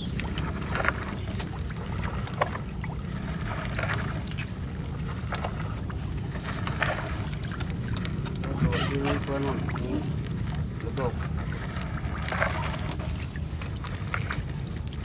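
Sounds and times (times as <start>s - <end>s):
boat engine low rumble: 0.0s - 15.0s.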